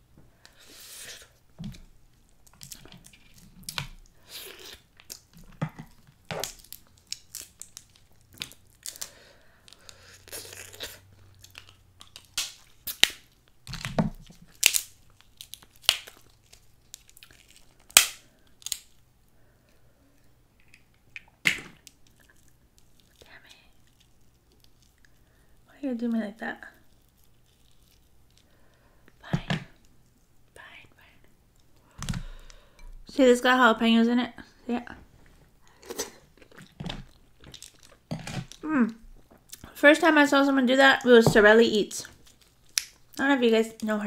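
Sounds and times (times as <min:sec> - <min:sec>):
person chewing: 0:02.4 - 0:18.9, 0:20.2 - 0:25.5, 0:26.8 - 0:28.5, 0:35.6 - 0:39.8
crab shells cracking: 0:02.4 - 0:19.0, 0:20.6 - 0:25.6, 0:35.7 - 0:39.7, 0:42.1 - 0:43.2.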